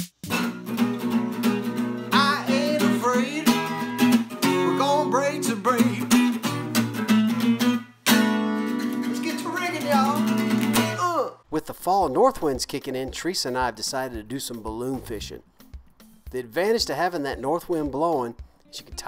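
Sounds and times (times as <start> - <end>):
acoustic guitar strumming: 0.2 - 11.2
man singing: 2.1 - 6.6, 9.1 - 11.4.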